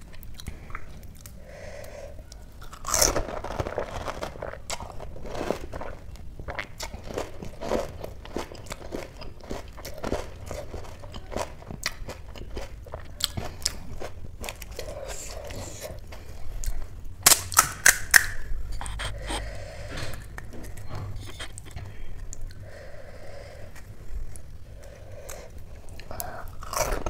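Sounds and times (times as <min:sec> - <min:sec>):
chewing and crunching: 0:00.0 - 0:27.0
wet mouth sounds: 0:14.6 - 0:23.9
loud crisp cracks: 0:17.2 - 0:18.5.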